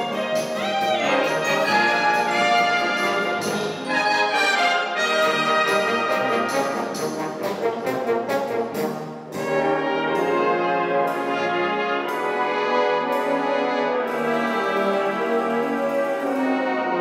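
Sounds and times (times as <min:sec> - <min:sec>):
saxophone solo: 0:00.0 - 0:07.1
wind band playing: 0:00.0 - 0:17.0.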